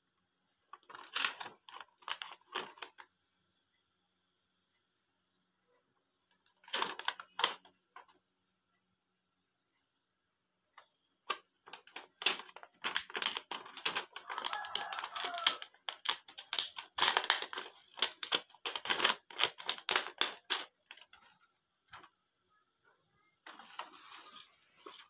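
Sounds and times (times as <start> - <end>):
rustling: 23.4 - 25.0.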